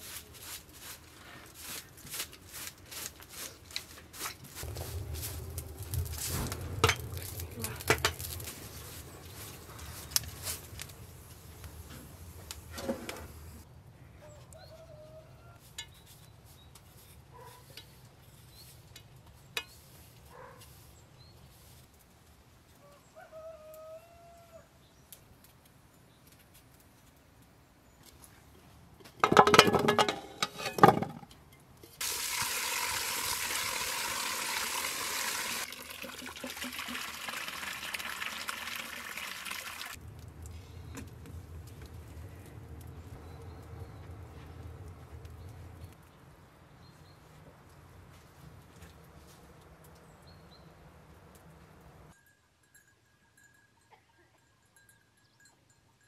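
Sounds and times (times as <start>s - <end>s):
water running: 32.0s - 40.0s.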